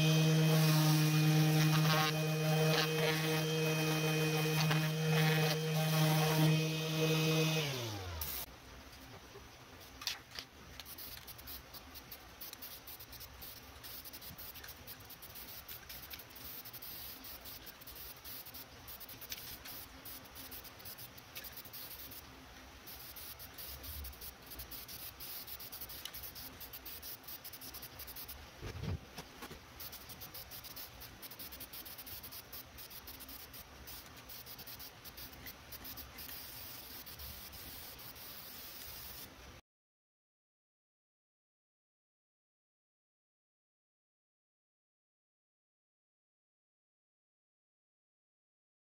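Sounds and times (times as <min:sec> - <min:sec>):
spray paint can hissing: 0:00.1 - 0:07.5, 0:08.2 - 0:08.5, 0:10.8 - 0:22.2, 0:22.9 - 0:28.4, 0:29.8 - 0:39.4.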